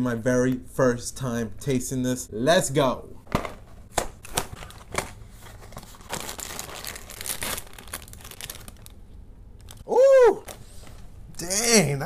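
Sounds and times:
plastic bag crinkling and tearing: 4.2s - 9.0s, 9.6s - 10.6s.

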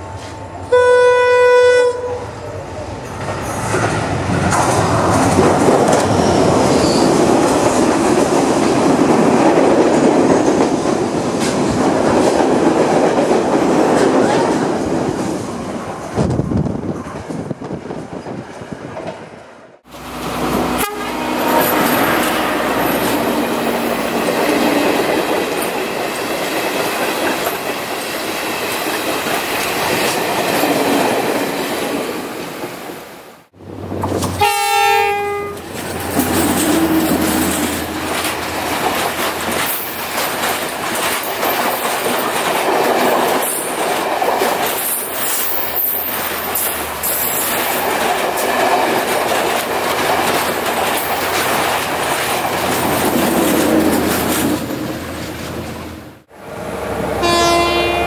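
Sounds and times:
locomotive horn blast: 0.7s - 2.3s, 20.0s - 24.2s, 34.4s - 35.7s, 57.2s - 58.0s
train wheels clattering: 3.1s - 15.3s, 35.5s - 55.6s.

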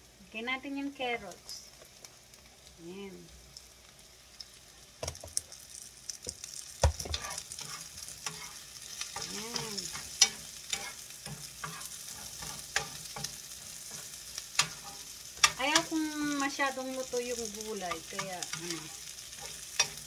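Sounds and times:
vegetables sizzling in oil: 0.0s - 20.0s
utensil knocking and scraping pan: 6.9s - 8.5s.

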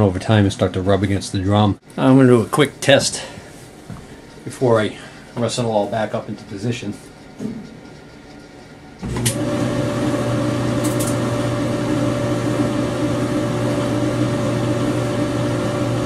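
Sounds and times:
clothes dryer running: 9.0s - 16.0s.

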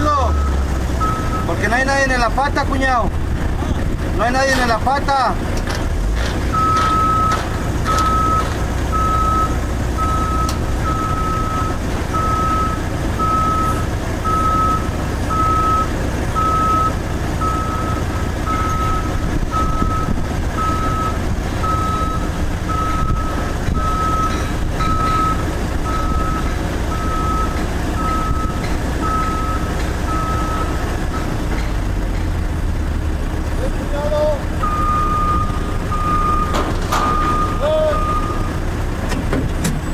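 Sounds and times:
motion alarm beeping: 6.6s - 30.7s, 34.6s - 38.5s.

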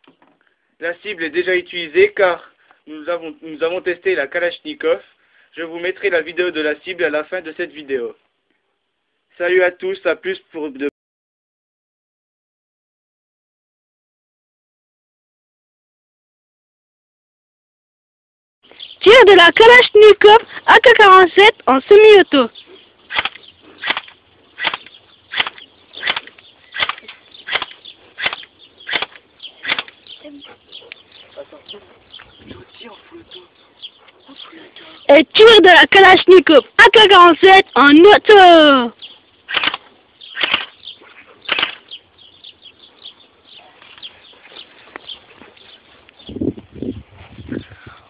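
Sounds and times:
airsoft gun firing single shots: 23.1s - 30.0s, 39.5s - 40.8s, 41.5s - 41.9s.

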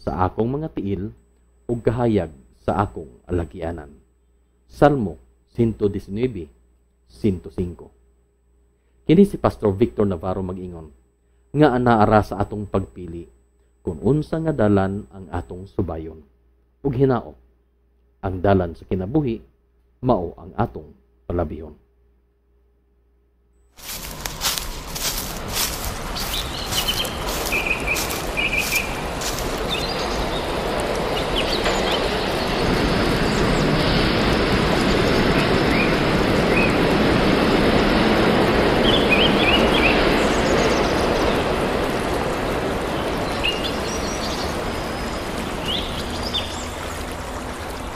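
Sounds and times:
birds chirping: 23.8s - 37.0s, 38.8s - 47.9s
running water rushing: 23.8s - 47.9s.

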